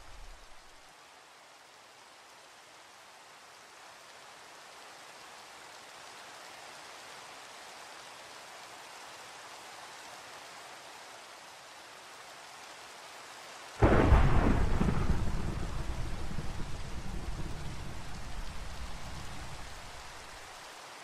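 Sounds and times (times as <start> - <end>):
steady rain hiss: 0.0 - 21.0
loud thunderclap with rumble: 13.8 - 20.1.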